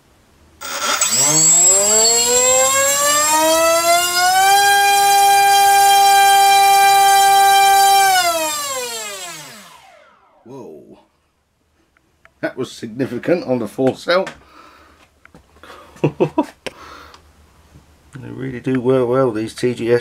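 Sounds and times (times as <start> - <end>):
electric motor and propeller whine: 0.6 - 10.5.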